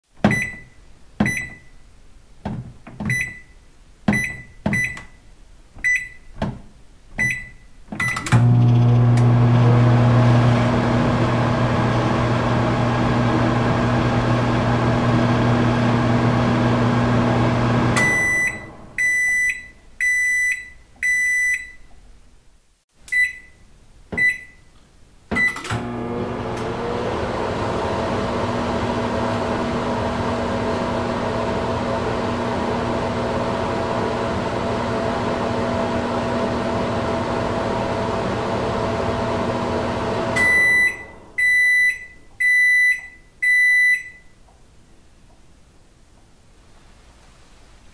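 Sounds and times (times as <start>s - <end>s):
microwave end-of-cycle beeps: 0.3s - 1.8s, 3.1s - 5.2s, 5.8s - 6.3s, 7.2s - 21.8s, 23.1s - 23.6s, 24.2s - 24.7s, 25.4s - 44.4s
microwave key beeps: 0.3s - 1.8s, 3.1s - 5.2s, 5.8s - 6.3s, 7.2s - 8.4s, 18.0s - 21.8s, 23.1s - 23.6s, 24.2s - 24.7s, 25.4s - 25.8s, 40.4s - 44.4s
microwave electric hum: 8.2s - 19.5s, 25.6s - 44.2s.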